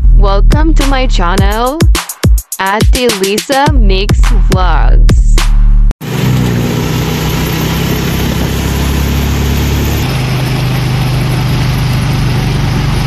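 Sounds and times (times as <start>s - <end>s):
road and wind noise: 6.0s - 13.0s
vehicle engine running: 6.0s - 13.0s.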